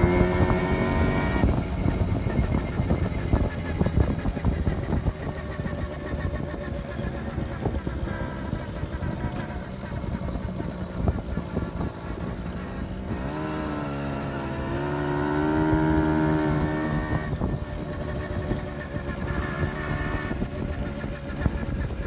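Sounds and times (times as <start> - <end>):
gusty wind noise: 0.0 - 22.0
moped engine buzzing: 0.0 - 22.0.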